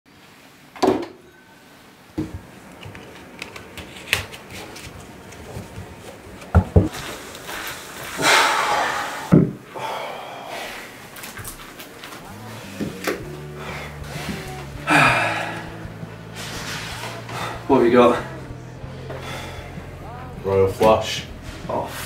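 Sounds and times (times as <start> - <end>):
playing cards shuffling: 2.3 - 7.8.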